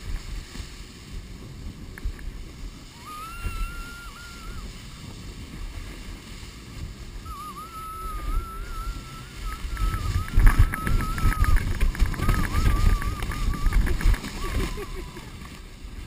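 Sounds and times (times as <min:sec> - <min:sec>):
canoe sliding over snow: 0:00.0 - 0:16.0
wind on microphone: 0:00.0 - 0:16.0
high wavering whine: 0:02.7 - 0:05.0, 0:07.1 - 0:15.6.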